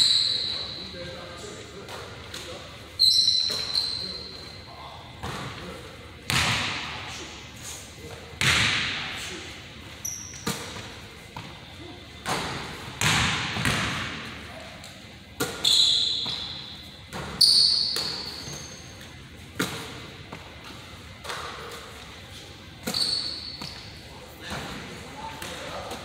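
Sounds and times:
brief high squeaks: 3.0 - 4.3, 22.9 - 23.6.

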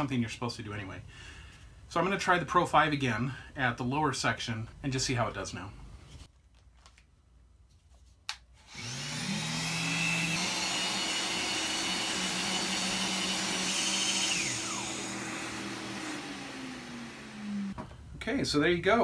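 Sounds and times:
dust extractor running: 8.7 - 17.8
orbital sander whine: 8.7 - 17.8.

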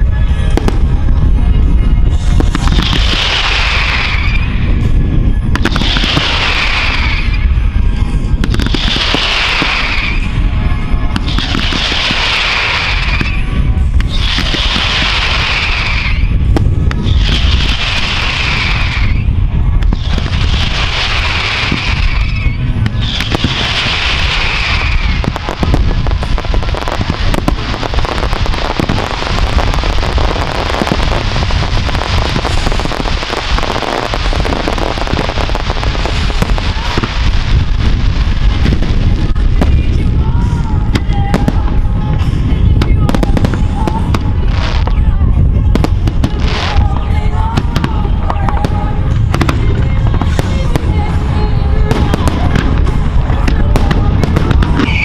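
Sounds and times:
fireworks bangs and crackling: 0.0 - 55.0
heavy rumble: 0.0 - 55.0
falling whistle sweep: 3.6 - 4.7.

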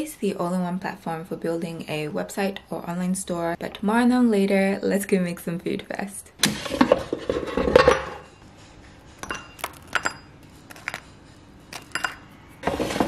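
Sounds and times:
clinks and taps on ceramic bowl: 9.2 - 11.1, 11.7 - 12.3.

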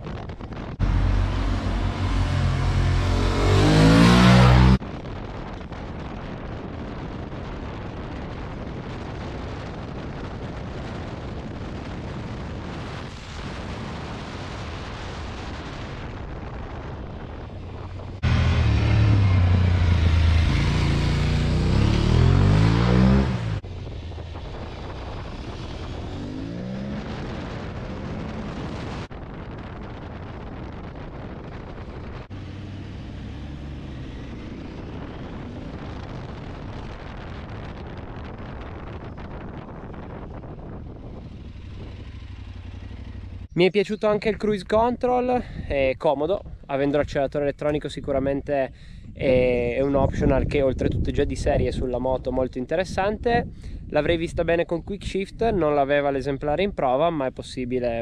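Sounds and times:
wind rush: 0.0 - 43.6, 48.7 - 55.6
motorcycle engine: 0.7 - 4.8, 17.1 - 29.1, 30.6 - 43.6
motorcycle accelerating through gears: 0.8 - 4.8, 18.2 - 29.1, 31.8 - 38.3, 39.8 - 43.6.

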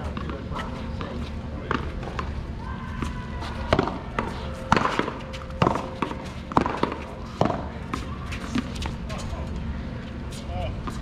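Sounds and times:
paddles smacking rubber ball: 3.7 - 7.6.

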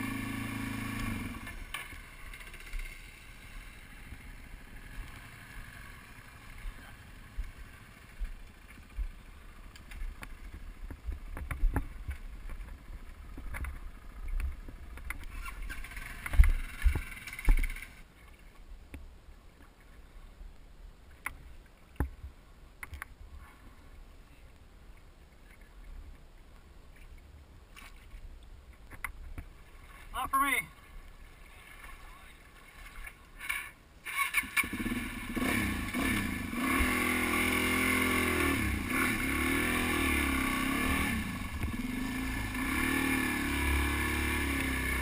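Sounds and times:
water sloshing and splashing: 27.0 - 36.2.

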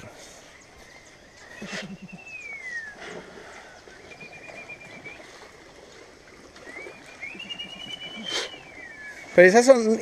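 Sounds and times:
person whistling: 1.6 - 3.0, 4.1 - 5.2, 6.6 - 9.4.

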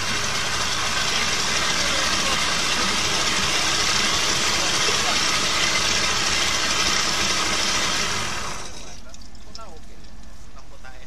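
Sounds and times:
outboard motor running: 0.0 - 9.1
propeller churning water: 0.0 - 9.9.

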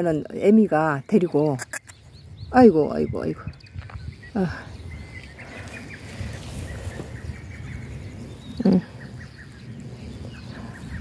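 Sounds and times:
small birds chirping: 0.0 - 11.0
goat bleating: 1.6 - 2.0.

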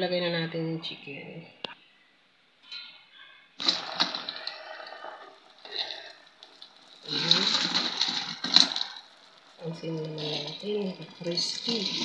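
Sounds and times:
sauce bubbling and sizzling: 3.6 - 12.0.

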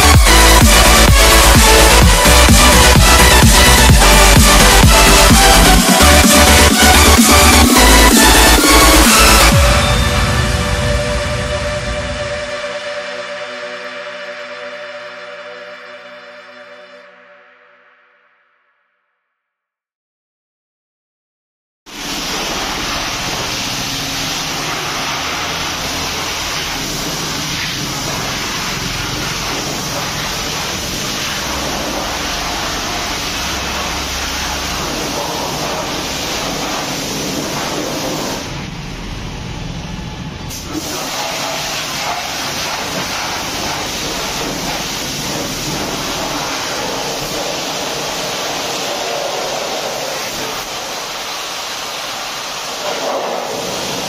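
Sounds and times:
pressure washer spraying: 0.0 - 10.8, 21.9 - 38.9, 40.4 - 54.0
low motor hum: 38.2 - 40.6.

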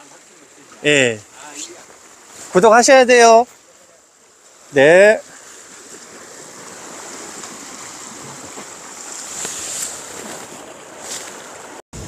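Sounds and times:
waves washing against rocks: 4.7 - 12.0.

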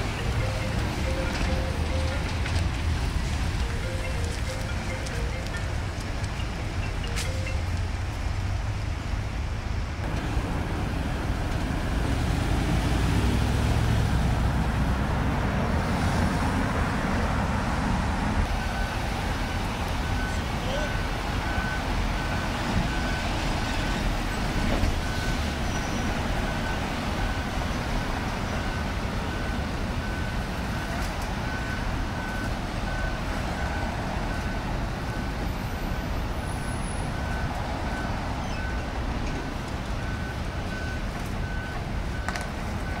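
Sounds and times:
truck reversing alarm beeps: 0.0 - 2.6, 3.4 - 7.8, 18.4 - 43.0.

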